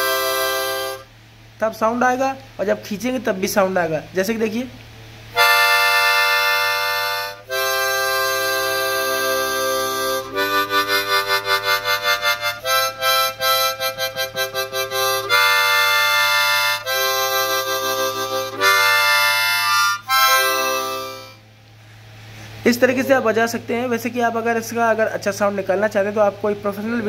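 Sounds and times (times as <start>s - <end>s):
harmonica chords: 0.0s - 1.2s, 5.3s - 21.5s.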